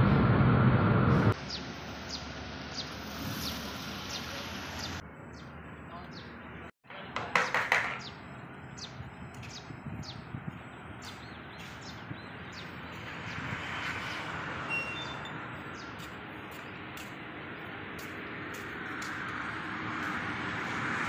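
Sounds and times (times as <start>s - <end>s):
traffic hiss: 1.0s - 5.0s
birds chirping: 1.4s - 19.2s.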